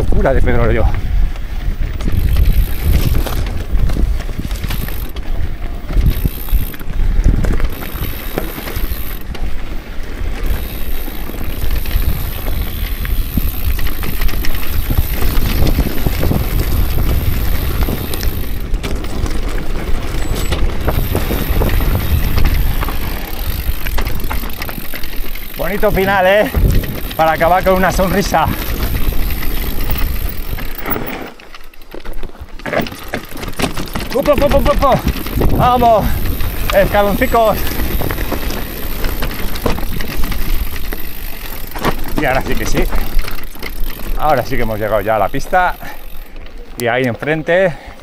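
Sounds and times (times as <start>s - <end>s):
bike rattling: 0.0s - 48.0s
tyres crunching over gravel: 0.4s - 48.0s.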